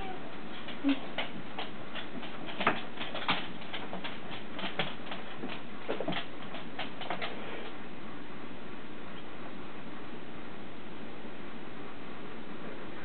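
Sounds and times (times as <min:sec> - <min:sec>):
kitten paws scrambling on stool: 0:00.0 - 0:07.8.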